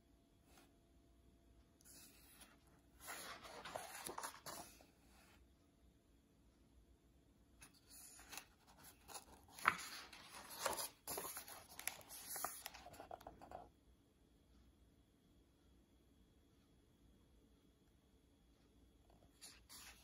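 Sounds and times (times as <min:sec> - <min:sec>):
paper page rustling: 0:01.9 - 0:04.9, 0:07.6 - 0:13.6, 0:19.4 - 0:20.0
page snapping: 0:09.2 - 0:12.8.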